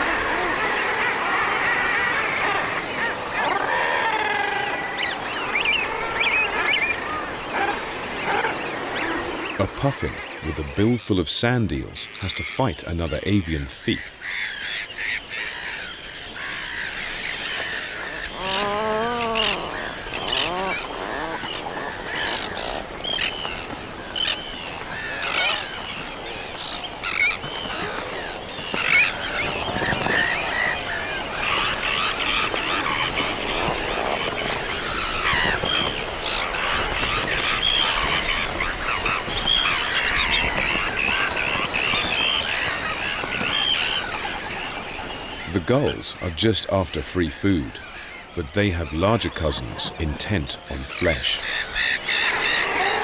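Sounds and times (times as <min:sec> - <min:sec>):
seabirds calling: 0:00.0 - 0:53.0
low wavering bird call: 0:18.2 - 0:22.7.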